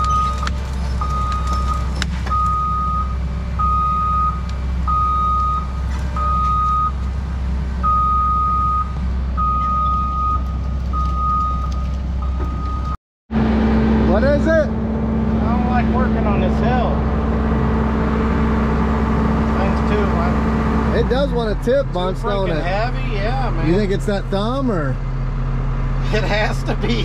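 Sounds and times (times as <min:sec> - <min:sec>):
backup alarm beeping: 0:00.0 - 0:07.0, 0:07.8 - 0:13.0
diesel engine running: 0:00.0 - 0:27.0.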